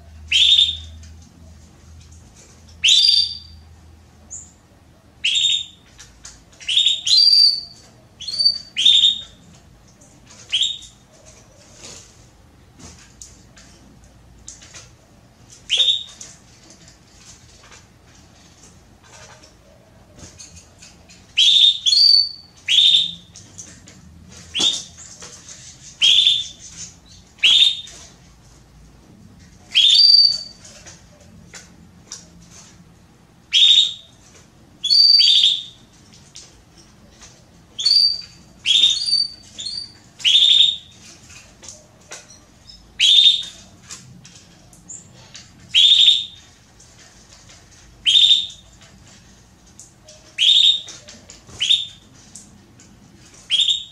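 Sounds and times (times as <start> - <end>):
canary calling: 0.2 - 1.0, 2.7 - 3.6, 5.2 - 6.0, 6.6 - 9.5, 10.4 - 12.0, 15.6 - 16.3, 21.1 - 23.7, 24.5 - 28.2, 29.6 - 30.9, 33.5 - 34.2, 34.8 - 35.9, 37.8 - 44.0, 44.9 - 46.6, 48.0 - 48.8, 50.0 - 52.2, 53.4 - 53.9.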